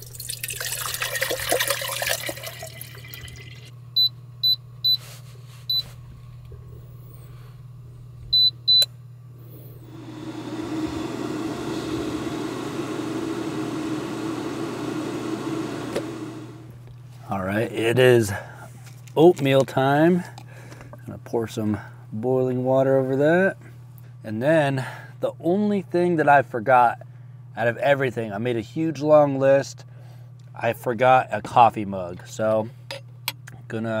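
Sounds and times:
kettle heating water: 0:00.0 - 0:03.7, 0:09.7 - 0:16.9
water pouring into kettle: 0:00.0 - 0:03.7
low steady hum: 0:00.0 - 0:34.0.

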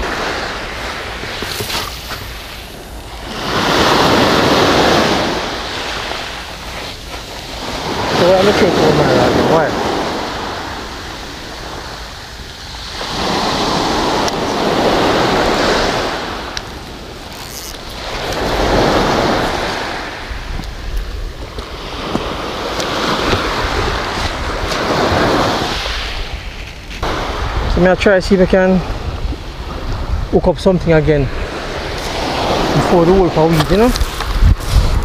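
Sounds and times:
small surf breaking: 0:00.0 - 0:12.1, 0:31.3 - 0:35.0.

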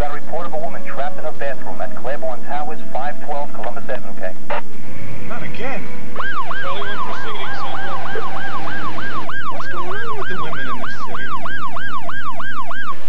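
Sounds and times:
police siren yelping: 0:06.2 - 0:13.0.

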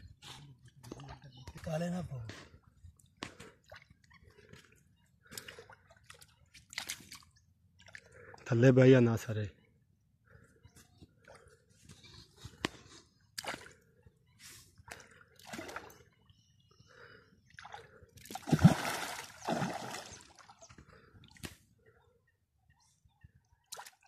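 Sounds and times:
fish splashing in water: 0:17.6 - 0:20.5.

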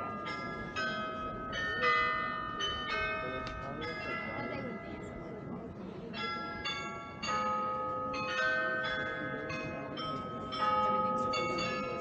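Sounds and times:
faint crowd murmur: 0:00.0 - 0:12.0
tuned bells playing a tune: 0:06.1 - 0:12.0.

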